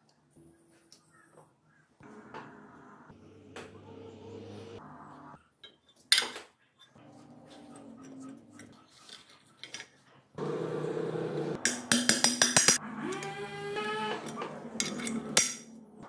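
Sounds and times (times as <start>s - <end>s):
metal parts clinking and knocking: 11.7s - 12.8s, 14.8s - 15.8s.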